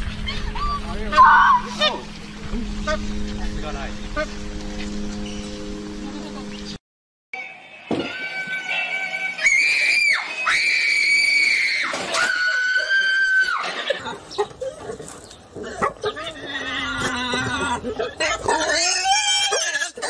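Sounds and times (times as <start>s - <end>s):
high-pitched screams: 0.3s - 2.0s, 9.1s - 13.8s.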